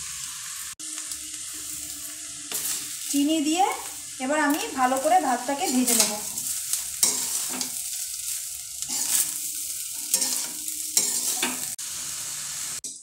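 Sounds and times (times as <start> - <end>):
rice sizzling in pan: 0.0 - 13.0
steel spatula scraping pan: 5.6 - 11.8.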